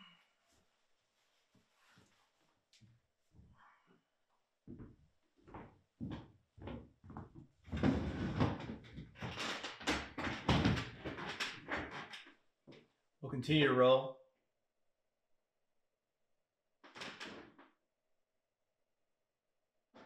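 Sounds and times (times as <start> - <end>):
footsteps on hardwood floor: 4.7 - 9.2
wooden chair dragged on floor: 7.8 - 8.8.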